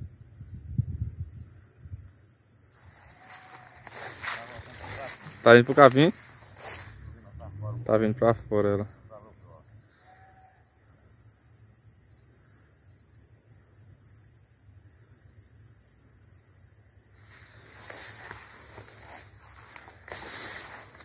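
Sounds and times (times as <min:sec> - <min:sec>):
insect chorus trilling: 0:00.0 - 0:21.0
rustling: 0:02.8 - 0:07.2, 0:17.3 - 0:21.0.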